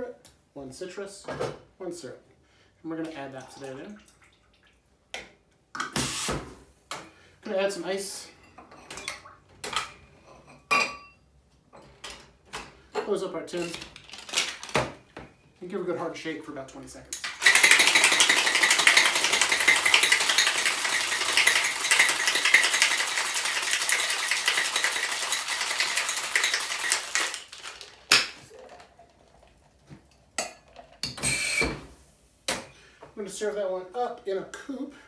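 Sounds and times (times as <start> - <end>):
ice rattling in metal shaker: 17.2 - 29.4.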